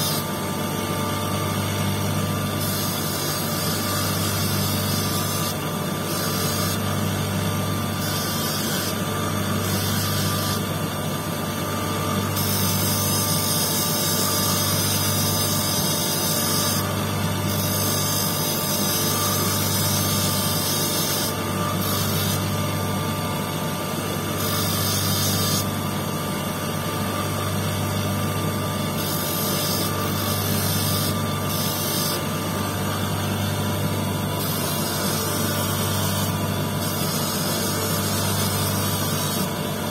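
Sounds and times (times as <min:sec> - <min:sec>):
electric motor humming: 0:00.0 - 0:39.9
stone grinding on wheel hiss: 0:08.0 - 0:09.0, 0:12.4 - 0:16.8, 0:17.5 - 0:22.5, 0:24.4 - 0:25.7, 0:29.0 - 0:32.2, 0:34.4 - 0:39.5.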